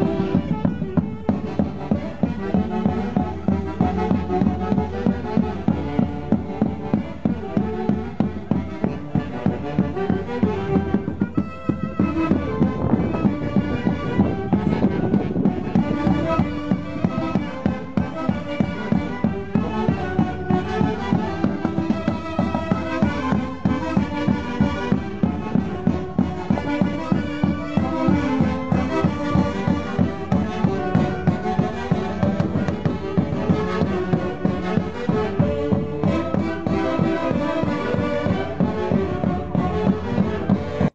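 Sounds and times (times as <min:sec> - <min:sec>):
festive dance music with steady beat: 0:00.0 - 0:40.9.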